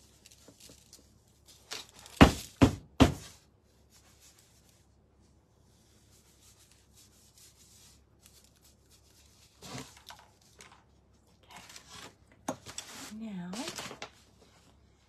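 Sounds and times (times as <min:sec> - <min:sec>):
paintbrush scrubbing board: 0:03.8 - 0:10.4.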